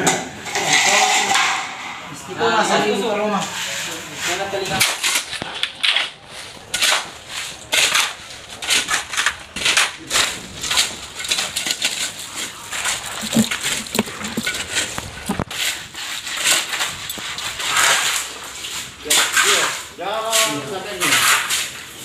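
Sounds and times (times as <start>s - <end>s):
shovel scraping wet concrete mix: 2.7s - 22.0s.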